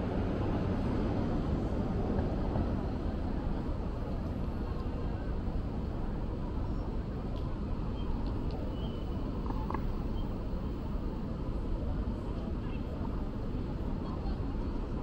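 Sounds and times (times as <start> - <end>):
low rumble of city ambience: 0.0 - 15.0.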